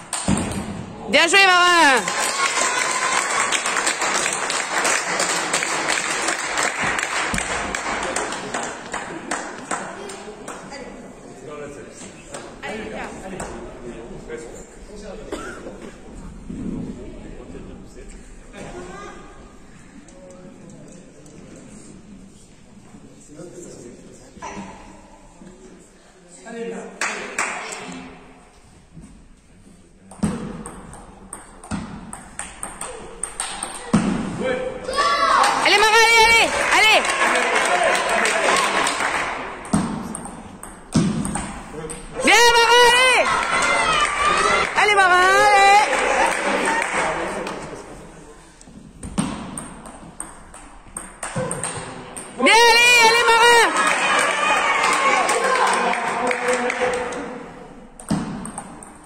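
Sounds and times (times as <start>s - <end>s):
spectators clapping: 1.4s - 10.8s, 27.0s - 28.1s, 35.3s - 39.7s, 42.5s - 47.8s, 53.0s - 57.5s.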